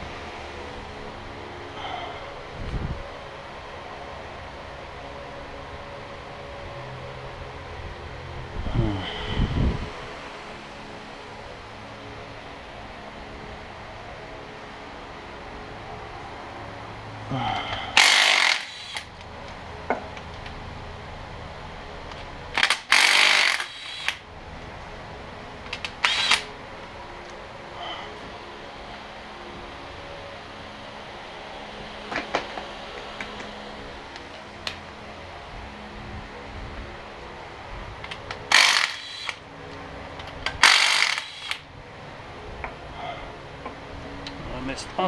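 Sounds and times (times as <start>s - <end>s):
impact wrench hammering: 18.0s - 19.1s, 22.6s - 24.2s, 38.5s - 39.4s, 40.6s - 41.6s.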